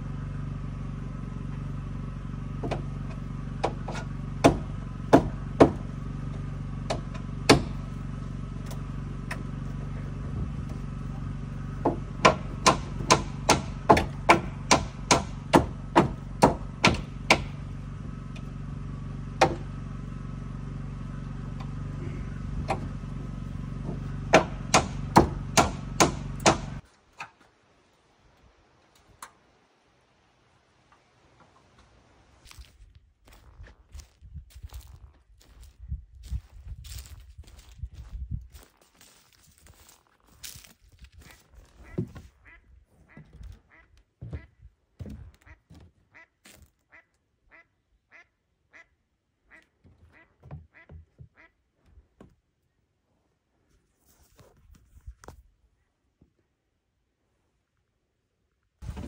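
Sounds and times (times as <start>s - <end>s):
steady low hum: 0.0s - 26.8s.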